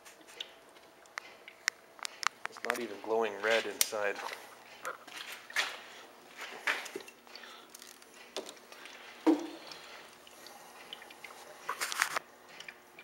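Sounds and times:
camera handling clicks and rustles: 11.7 - 12.2.

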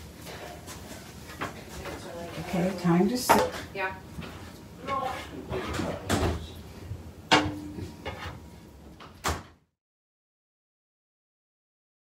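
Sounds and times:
spatula scraping a pan: 0.1 - 2.8, 4.2 - 6.0, 7.7 - 8.5
spatula knocking on a pot: 7.3 - 8.2.

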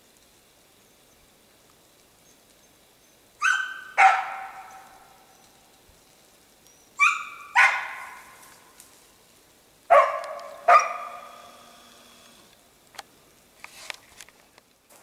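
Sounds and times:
dog barking with echo: 3.4 - 5.0, 7.0 - 8.4, 9.9 - 11.4.

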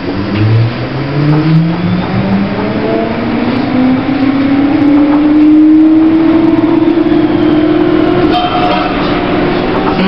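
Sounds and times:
tram running rumble: 0.0 - 10.0
tram traction motor whine: 0.0 - 10.0.

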